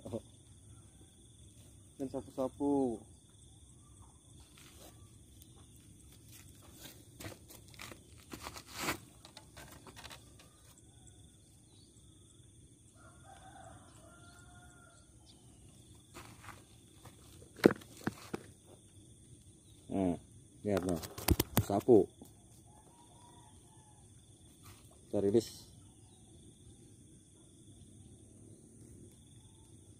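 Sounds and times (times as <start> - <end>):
faint rooster crowing: 12.8 - 15.5, 22.6 - 24.8.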